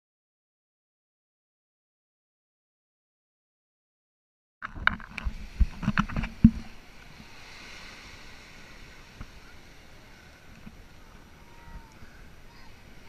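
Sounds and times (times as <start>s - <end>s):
wind on microphone: 4.6s - 13.0s
small waves lapping on sand: 5.1s - 13.0s.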